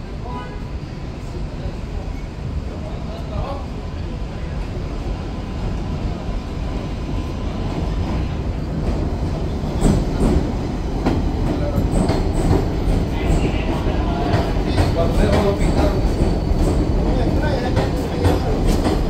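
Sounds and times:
subway train rumbling: 0.0s - 19.0s
train wheels clicking on rails: 6.7s - 19.0s.

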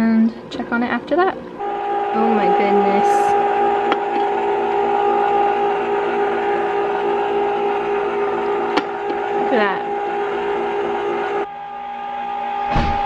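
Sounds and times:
ice cream maker motor hum: 1.2s - 11.4s.

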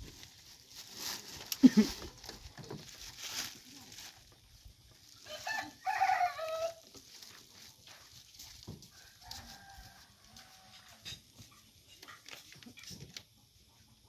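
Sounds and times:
rooster crowing: 5.2s - 6.8s, 8.9s - 11.1s.

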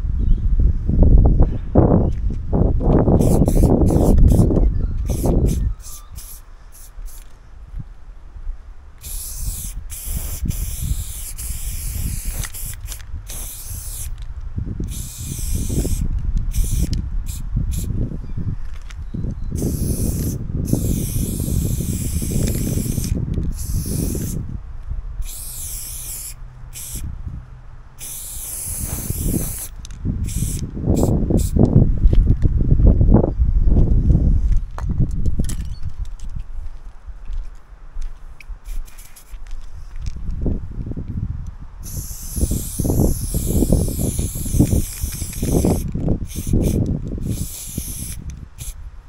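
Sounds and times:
spray paint can hissing: 3.1s - 7.4s, 9.0s - 14.2s, 14.8s - 18.0s, 19.5s - 24.4s, 25.2s - 27.1s, 28.0s - 31.7s, 38.4s - 39.6s, 41.8s - 48.8s.

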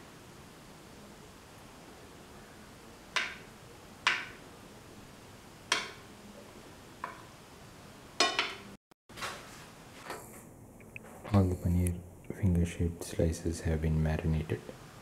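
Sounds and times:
clicks and taps on a dish: 3.2s - 3.4s, 4.1s - 4.4s, 5.7s - 6.0s.

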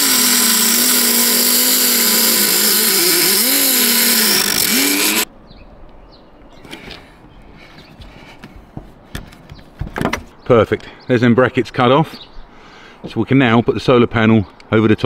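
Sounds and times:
power tool cutting metal: 0.0s - 5.3s.

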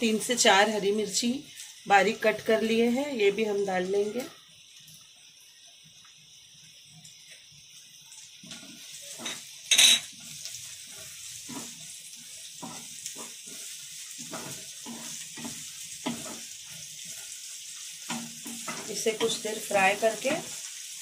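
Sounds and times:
onions sizzling in oil: 0.0s - 21.0s
wooden spatula scraping pan: 10.8s - 11.9s, 12.6s - 17.2s.

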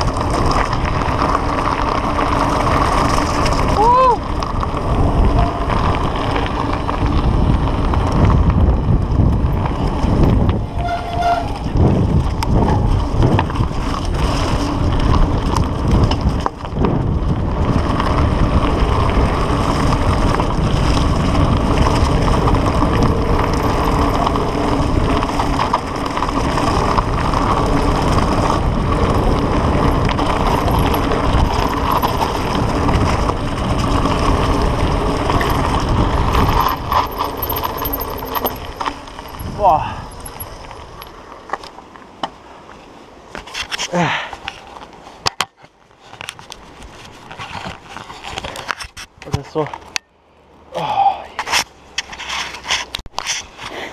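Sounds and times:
wind rush on microphone: 0.0s - 41.2s
bike tyres on gravel: 0.0s - 49.9s, 50.7s - 53.9s.

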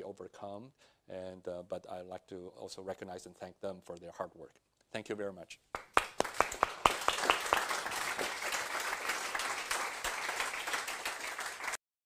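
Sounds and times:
audience applauding: 5.8s - 11.8s.

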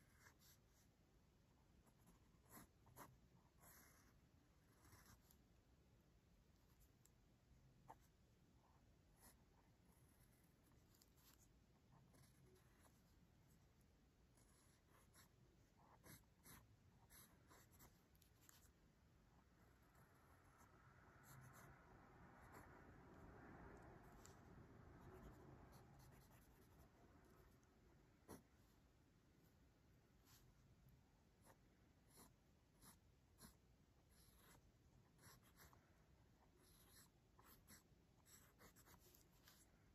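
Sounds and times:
pencil scratching on paper: 0.0s - 0.9s, 1.8s - 5.5s, 9.2s - 18.8s, 19.9s - 23.2s, 24.1s - 28.8s, 31.4s - 35.8s, 36.4s - 39.8s.

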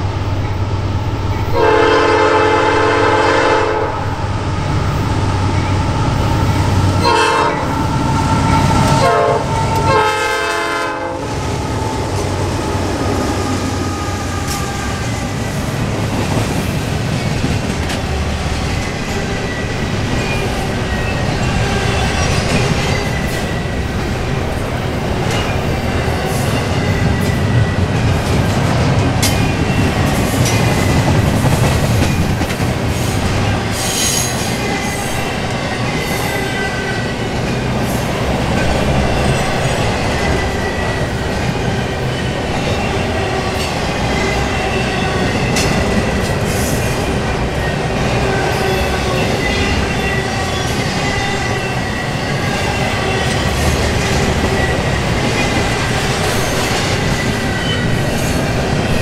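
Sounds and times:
train wheels on rails: 0.0s - 59.0s
locomotive horn blasts: 1.5s - 4.1s, 7.0s - 7.8s, 8.6s - 11.4s.

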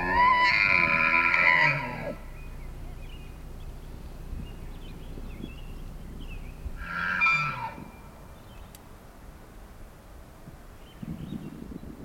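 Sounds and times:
elk bugling: 0.0s - 9.2s.

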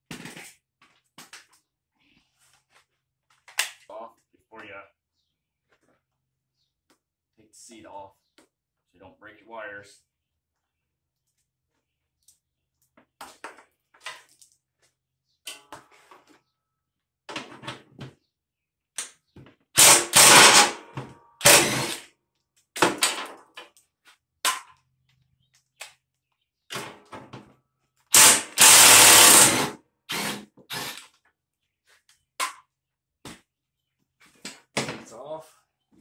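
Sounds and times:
cordless drill running: 19.8s - 20.8s, 21.4s - 22.0s, 28.1s - 31.0s.

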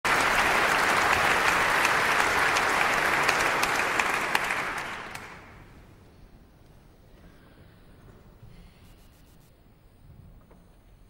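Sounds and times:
large audience applauding: 0.0s - 5.7s.

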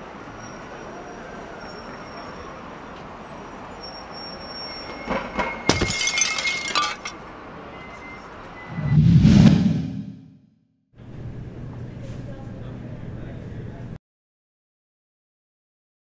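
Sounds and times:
glass mug shattering: 5.7s - 7.1s.

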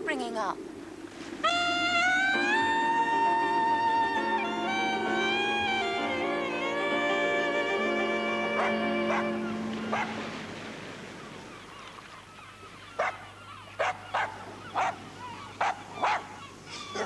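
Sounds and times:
bowed string music: 1.5s - 10.7s
dog barking: 8.6s - 9.3s, 9.9s - 10.2s, 13.0s - 15.0s, 15.6s - 16.3s.

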